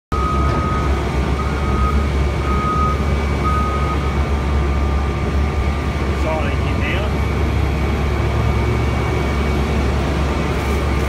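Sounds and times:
reversing alarm beeps: 0:00.1 - 0:05.8
diesel engine rumbling: 0:00.1 - 0:11.0.

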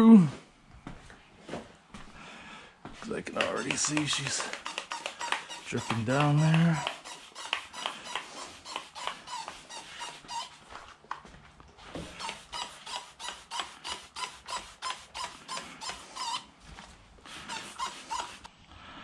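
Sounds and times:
spray bottle squirting: 0:03.3 - 0:10.5.

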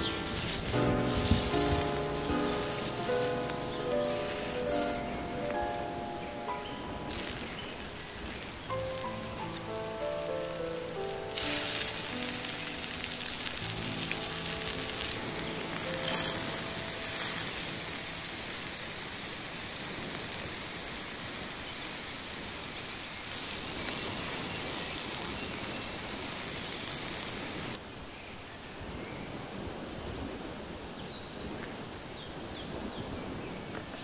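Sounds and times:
meat sizzling in oil on hot stone: 0:00.0 - 0:31.5.

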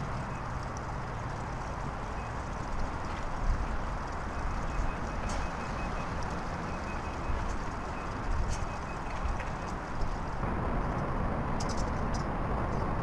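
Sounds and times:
wind: 0:00.0 - 0:13.0
faint high-pitched beep: 0:04.4 - 0:09.2.

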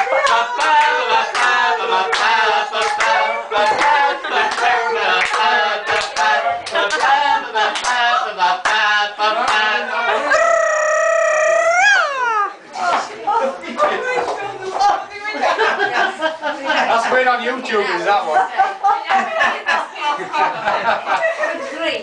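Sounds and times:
voices singing together: 0:00.0 - 0:12.6.

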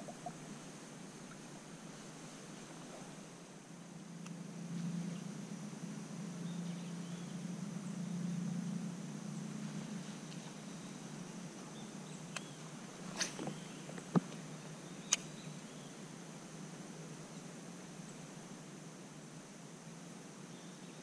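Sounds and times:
low steady rumble: 0:00.0 - 0:20.7
high insect-like whine: 0:00.0 - 0:21.0
sharp clicks of fishing gear: 0:15.0 - 0:15.3.

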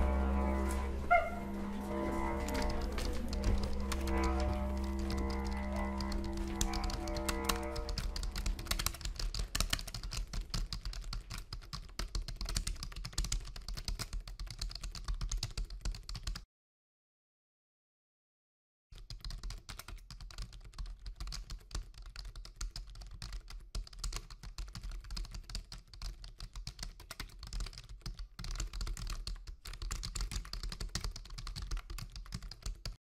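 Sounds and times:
keyboard typing clicks: 0:00.0 - 0:16.4.

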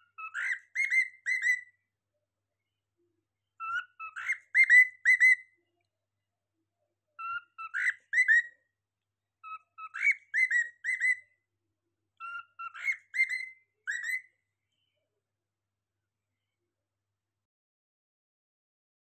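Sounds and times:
cockatiel whistling: 0:00.1 - 0:01.7, 0:03.6 - 0:05.4, 0:07.2 - 0:08.6, 0:09.4 - 0:11.2, 0:12.2 - 0:14.3.

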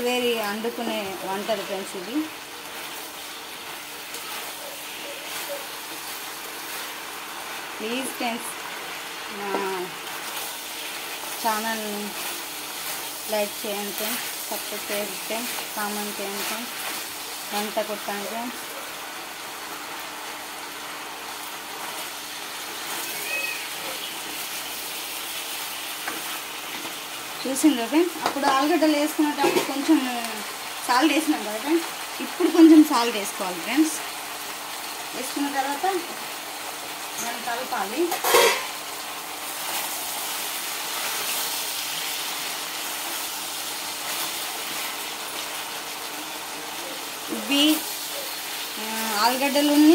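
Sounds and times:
spatula turning food in pan: 0:00.0 - 0:49.9
vegetables sizzling in oil: 0:00.0 - 0:49.9
spatula stirring in pan: 0:02.6 - 0:18.2, 0:39.6 - 0:47.2.

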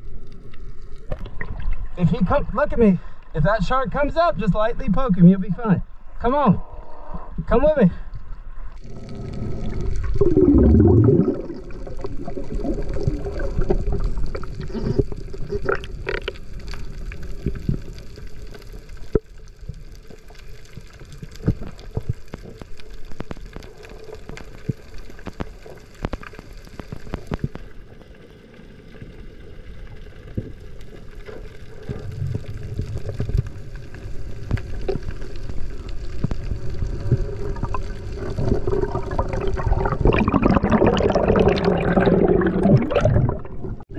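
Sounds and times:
muffled underwater rush of water: 0:00.0 - 0:43.9
loud surge of water: 0:09.0 - 0:14.4.

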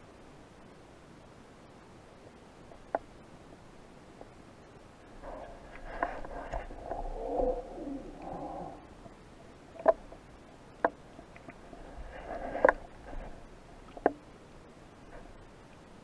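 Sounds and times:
underwater water swishes: 0:05.0 - 0:14.3.

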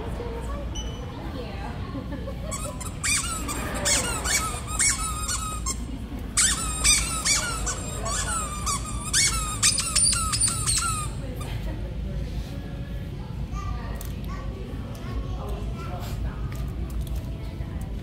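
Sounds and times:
squeaky toy squeaking: 0:02.5 - 0:11.2.

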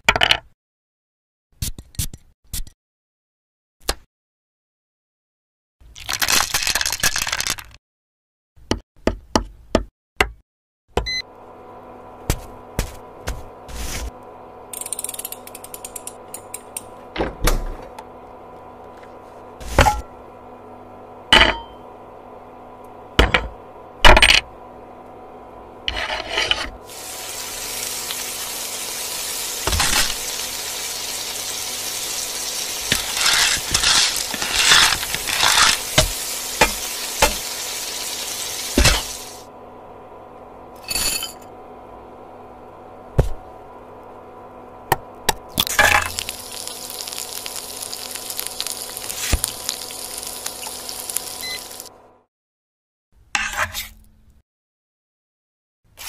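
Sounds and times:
steady sizzle: 0:25.6 - 0:39.5, 0:45.5 - 0:52.1.

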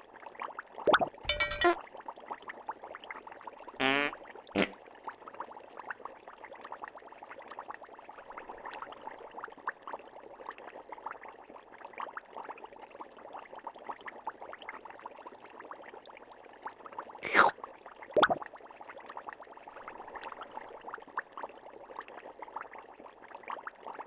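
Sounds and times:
underwater bubbling pops and clicks: 0:00.9 - 0:01.8, 0:18.2 - 0:18.5.

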